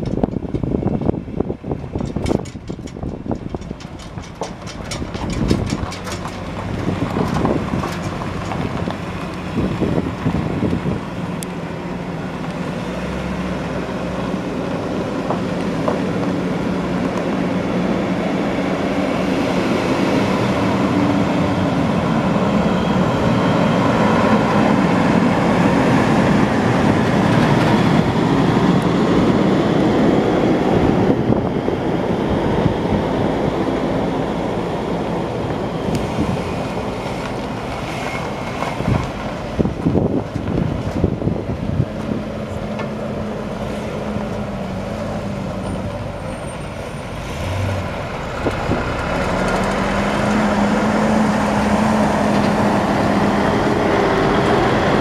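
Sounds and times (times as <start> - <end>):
engine knocks: 0.0 - 10.8
truck engine running: 0.0 - 55.0.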